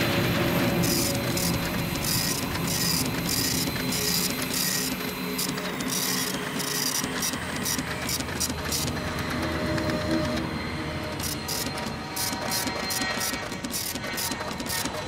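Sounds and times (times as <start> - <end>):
low steady drone: 0.0 - 15.0
teleprinter chatter: 0.7 - 15.0.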